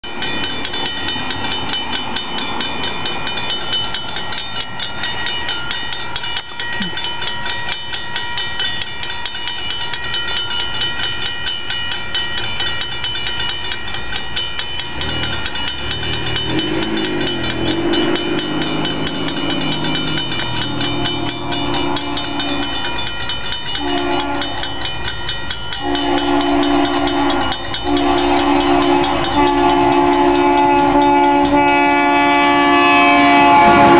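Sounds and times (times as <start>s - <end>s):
railroad crossing bell ringing: 0.0s - 33.9s
locomotive horn blasts: 15.0s - 22.8s, 23.7s - 24.9s, 25.7s - 33.9s.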